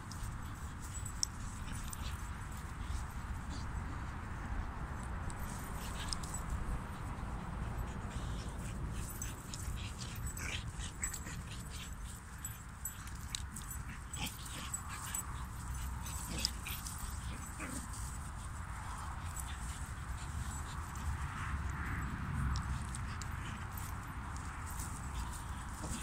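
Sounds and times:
dogs yipping and whimpering: 5.4s - 21.8s, 22.8s - 26.0s.

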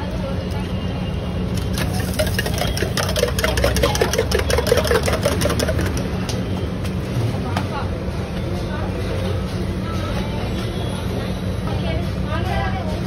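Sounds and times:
spoon clinking in metal mug: 1.7s - 6.0s.

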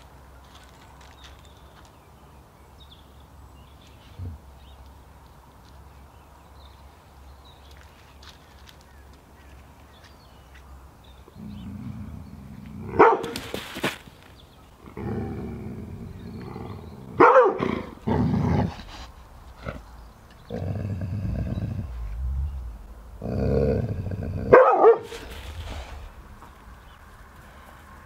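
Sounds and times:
dog growling: 11.4s - 13.0s, 14.8s - 26.3s
dog barking: 12.9s - 13.4s, 17.2s - 17.9s, 24.5s - 25.3s.

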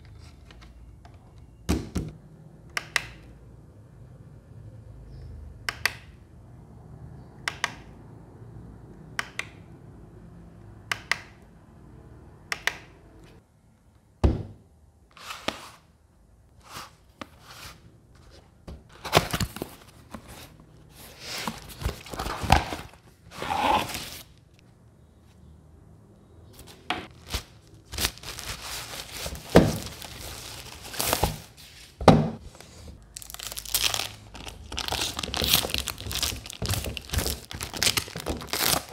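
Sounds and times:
cardboard box opened: 18.9s - 24.3s, 28.1s - 31.8s
plastic film rustling and tearing: 27.1s - 31.9s, 33.1s - 38.9s
paper crinkling: 27.1s - 32.0s, 33.0s - 38.9s.

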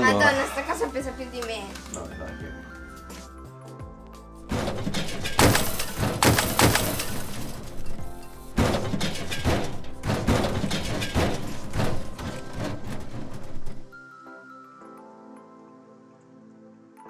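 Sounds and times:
heavy crashes: 4.5s - 13.9s
wall smashing and crumbling: 4.5s - 13.9s.

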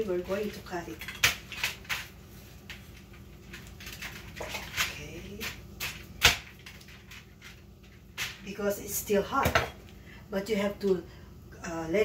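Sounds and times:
aluminium foil crinkling: 0.0s - 8.7s.

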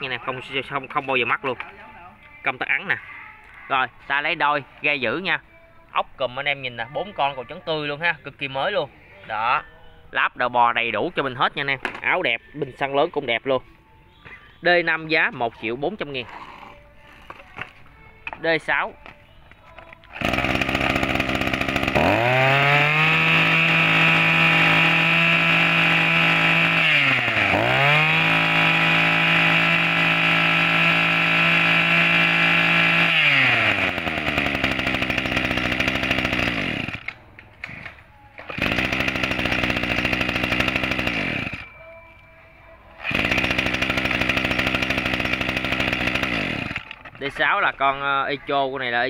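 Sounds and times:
brush cutter engine revving: 20.1s - 41.7s, 43.0s - 47.4s.

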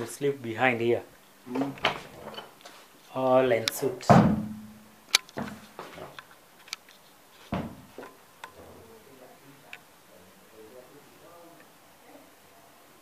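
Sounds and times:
heavy thump: 4.0s - 4.8s, 7.5s - 8.1s
footsteps on tiles: 5.2s - 8.2s.

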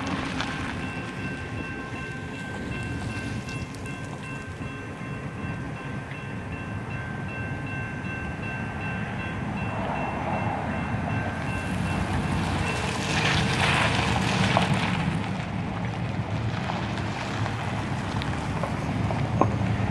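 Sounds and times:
crossing warning bell ringing: 0.0s - 14.0s
trucks driving across tracks: 0.0s - 19.9s.

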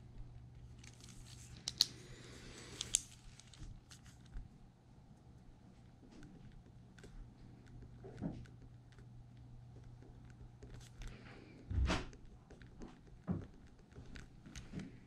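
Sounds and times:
pen clicks: 0.8s - 2.0s.

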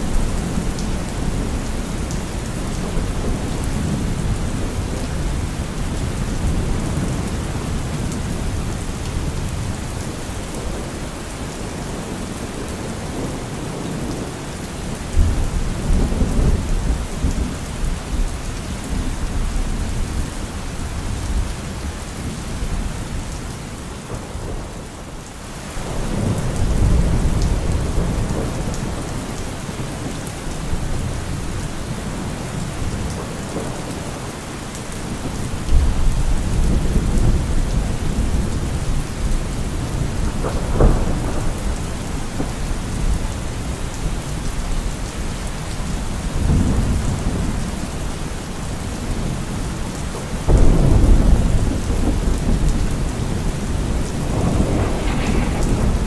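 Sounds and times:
heavy rain pouring: 0.0s - 56.0s
thunder rumbling: 35.2s - 43.8s, 50.4s - 56.0s
sharp thunder crack: 53.3s - 56.0s.

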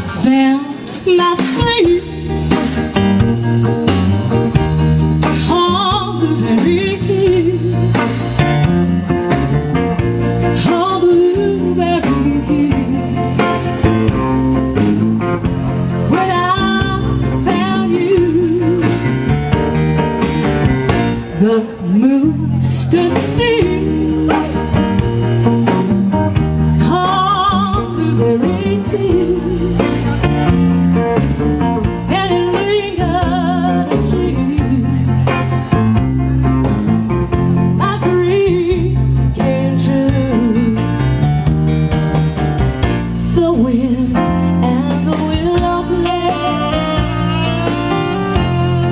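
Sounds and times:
bass: 0.0s - 48.9s
drums: 0.0s - 48.9s
guitar: 0.0s - 48.9s
person singing: 43.4s - 48.9s.

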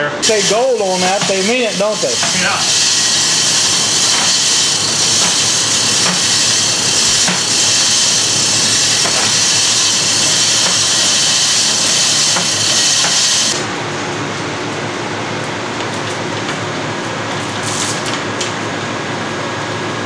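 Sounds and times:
loud steady hiss: 0.0s - 13.6s.

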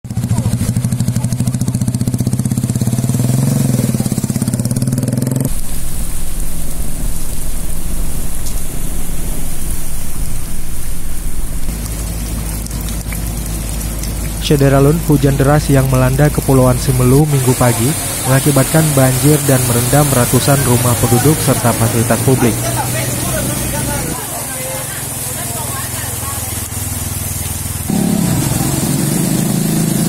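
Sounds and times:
motorcycle engine running: 0.0s - 14.5s, 24.9s - 30.0s
faint engine: 0.0s - 24.2s, 24.9s - 30.0s
hiss of water and rain: 0.1s - 30.0s.

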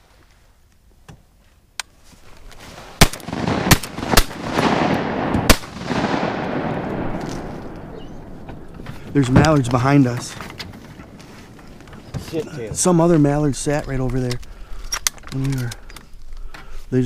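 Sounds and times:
shotgun blasts: 3.0s - 8.5s.

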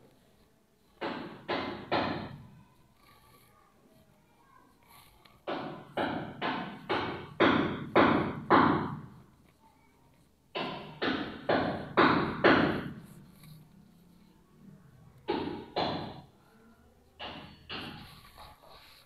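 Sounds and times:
heavy knocks: 5.5s - 9.1s, 10.5s - 13.2s, 15.3s - 16.3s.

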